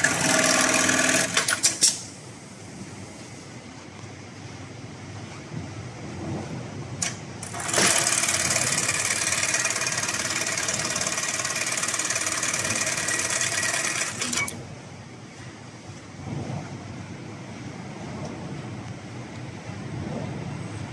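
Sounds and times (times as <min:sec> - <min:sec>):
sewing machine stitching: 0:00.0 - 0:01.9, 0:07.4 - 0:14.6.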